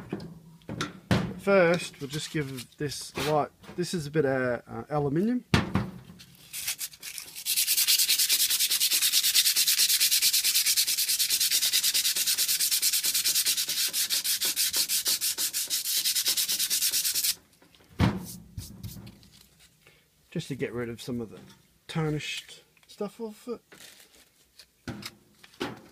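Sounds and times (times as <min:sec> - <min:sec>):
abrasive sheet rubbing metal: 0:06.4 - 0:17.4.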